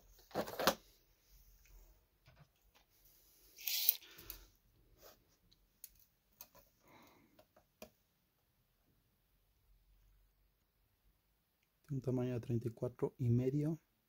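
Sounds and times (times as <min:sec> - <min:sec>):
tape measure clicks: 0:03.6 - 0:04.1.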